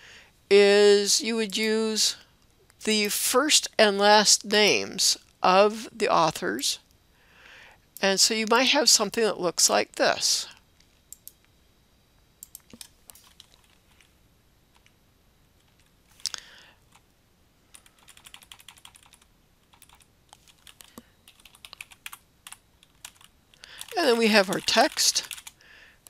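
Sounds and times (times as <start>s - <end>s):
computer keyboard typing: 12.4s - 14.0s, 17.7s - 25.6s.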